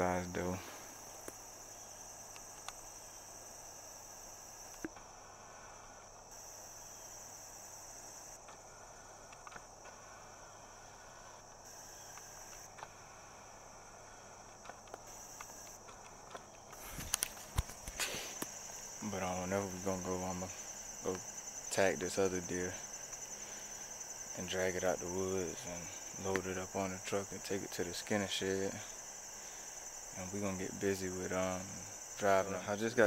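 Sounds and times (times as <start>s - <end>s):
crickets trilling: 0.0s - 33.0s
faint clicks and rustles: 14.4s - 27.8s.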